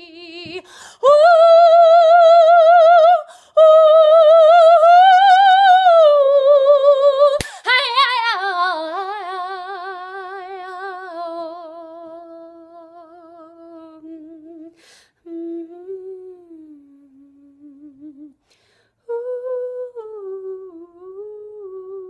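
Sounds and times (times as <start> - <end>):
woman breathing in: 0.6 - 1.0, 3.3 - 3.6, 14.8 - 15.2, 18.4 - 19.0.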